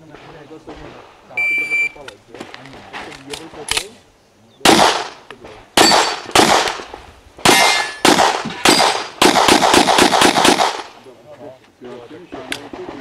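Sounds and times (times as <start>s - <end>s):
handgun shots: 4.7s - 10.9s
ringing metallic clang: 7.5s - 9.0s.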